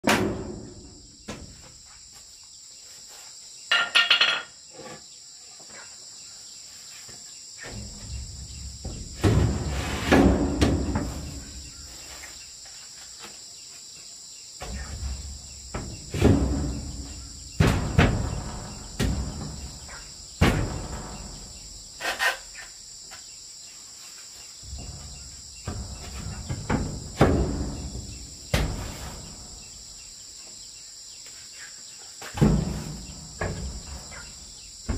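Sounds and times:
high insect drone: 0.2 - 34.9
wooden boards knocking on timber: 24.7 - 29.0.

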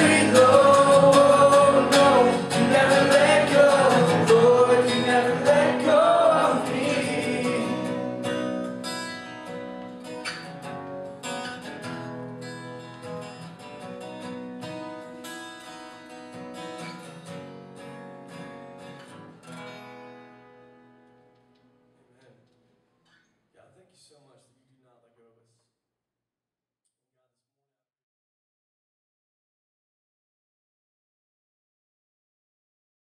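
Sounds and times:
person singing: 0.0 - 8.1
acoustic guitar strumming: 0.0 - 22.0.

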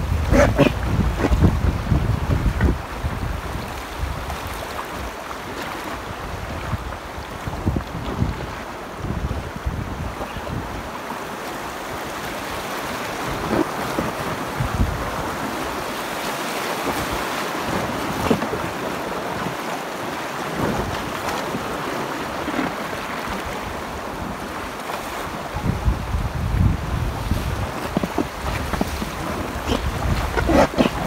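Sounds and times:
wind buffeting microphone: 0.0 - 5.1, 6.0 - 10.9, 13.2 - 15.7, 25.4 - 31.0
river rapids rushing and splashing: 0.0 - 31.0.

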